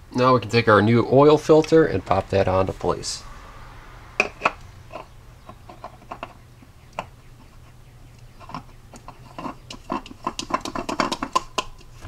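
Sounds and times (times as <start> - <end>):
oil filter clicking and tapping: 8.2 - 12.0.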